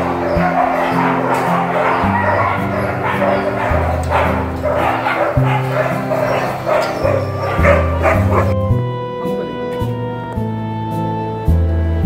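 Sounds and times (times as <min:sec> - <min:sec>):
dogs barking and yipping: 0:00.0 - 0:08.6
background music with bass line: 0:00.0 - 0:12.0.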